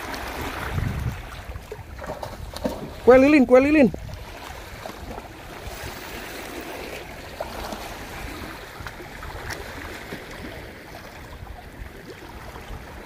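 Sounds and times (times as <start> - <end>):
sea water washing: 0.0 - 13.0
wind rumbling on microphone: 0.0 - 13.0.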